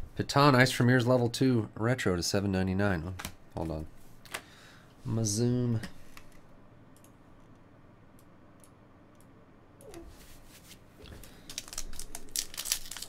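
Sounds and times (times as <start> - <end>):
foil pack crinkling: 11.1 - 13.0.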